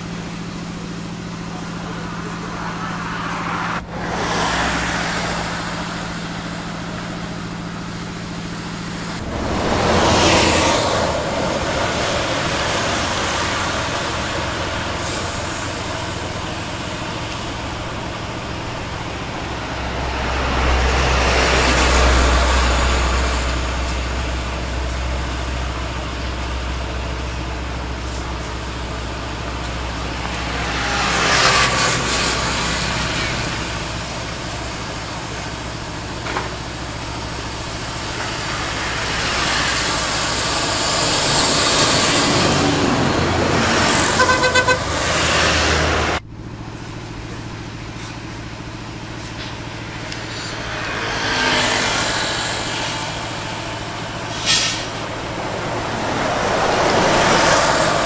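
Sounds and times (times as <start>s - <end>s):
trucks and bus passing: 0.0s - 58.0s
vehicle horn short toots: 44.2s - 44.9s.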